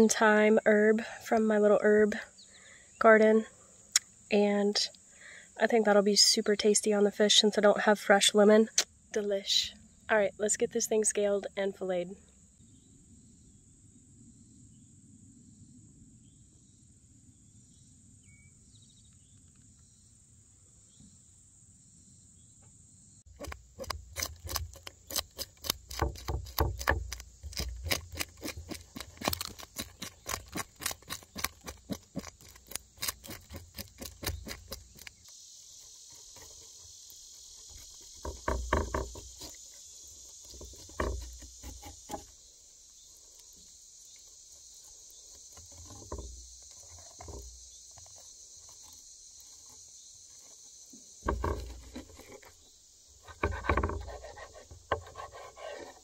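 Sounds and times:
crickets chirring: 0.0s - 56.0s
knife scraping fish scales: 23.4s - 35.3s.

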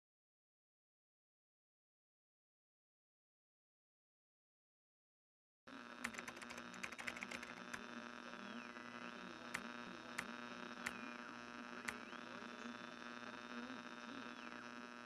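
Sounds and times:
steady low hum: 5.7s - 15.0s
typing on a keyboard: 6.0s - 7.8s.

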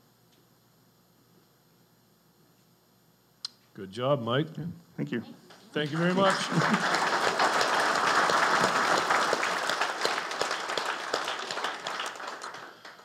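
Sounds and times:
audience applauding: 5.5s - 13.0s.

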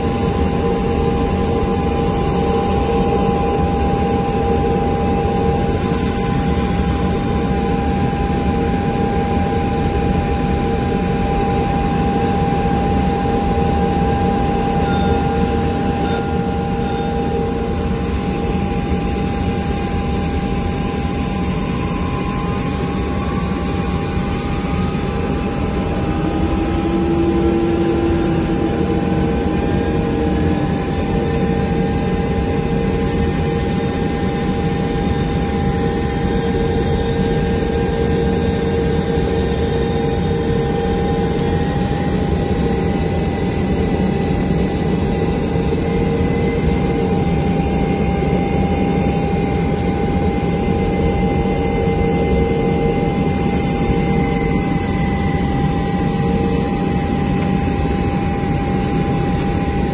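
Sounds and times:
jet engines whine and rush: 0.0s - 59.9s
faint rising whine: 14.2s - 18.8s
short high beeps: 14.8s - 17.3s.

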